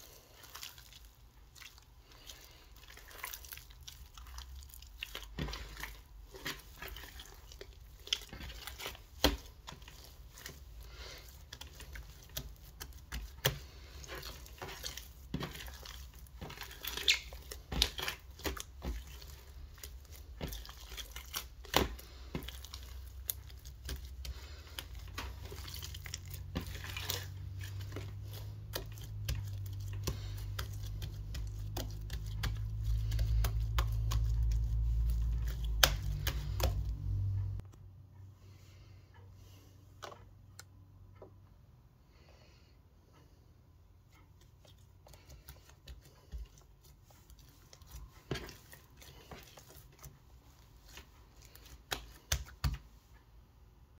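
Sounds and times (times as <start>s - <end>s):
low rumble: 36.0s - 37.7s.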